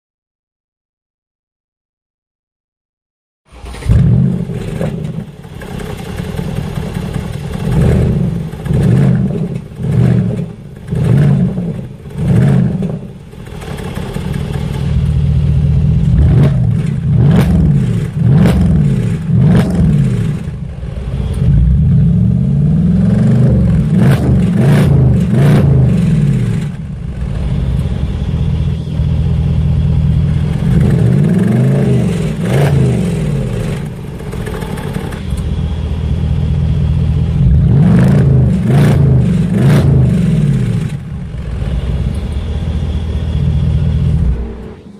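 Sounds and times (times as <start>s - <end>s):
car engine revving: 3.5s - 44.9s
exhaust cracks: 3.5s - 44.9s.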